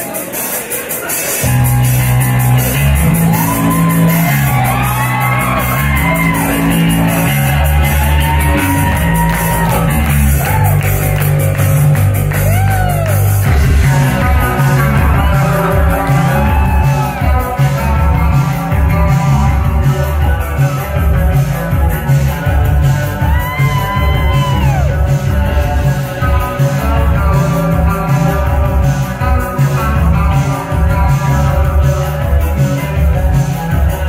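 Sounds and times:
crowd whooping and shouting: 1.1 - 21.0, 22.3 - 25.5
pulsing low bass line: 1.4 - 33.8.

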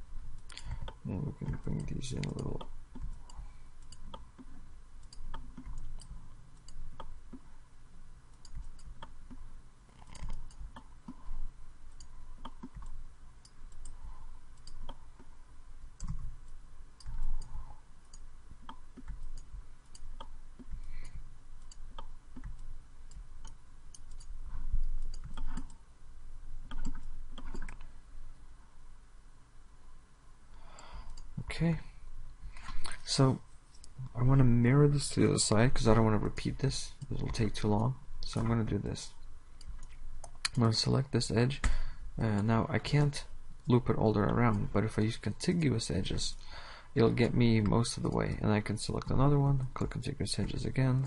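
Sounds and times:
mouse and keyboard clicks: 8.3 - 11.3, 16.0 - 16.3, 17.0 - 25.8, 26.6 - 27.9.

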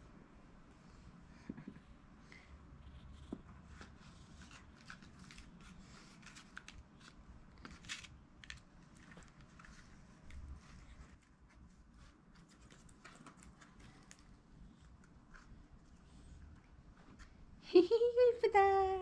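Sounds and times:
mask rustling and crinkling: 3.8 - 16.0.

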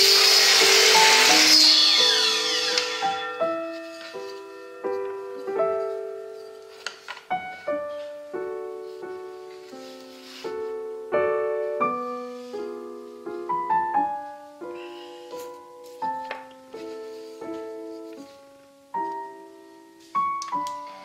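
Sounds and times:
slow piano music: 0.0 - 21.0.

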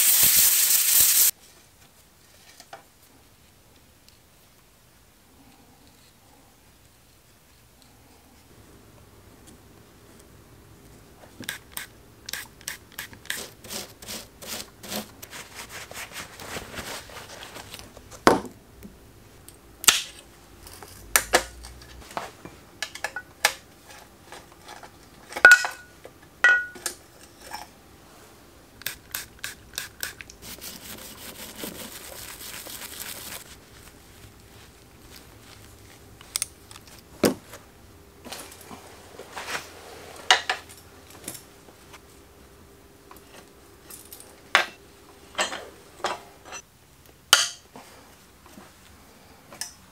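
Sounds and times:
brush scrubbing: 13.3 - 17.7, 29.4 - 35.7.

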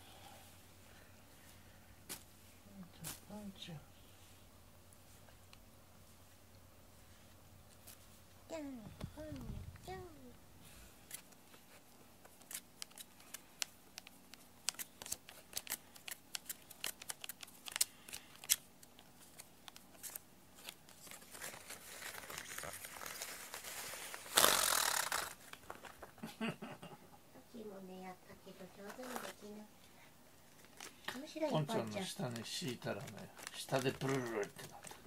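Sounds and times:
paper crinkling and rustling: 14.6 - 24.4, 31.8 - 35.0
paper wings flapping whirr: 14.6 - 26.1.

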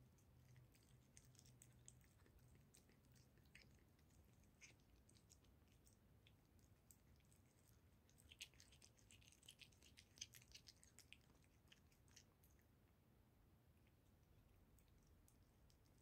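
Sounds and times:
cat chewing and licking: 0.0 - 16.0.

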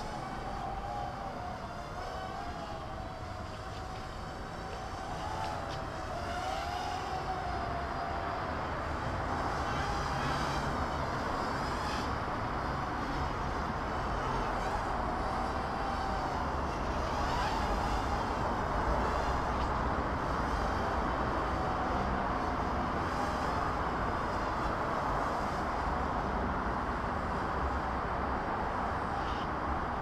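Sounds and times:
toy quadcopter motors buzzing: 0.0 - 30.0.

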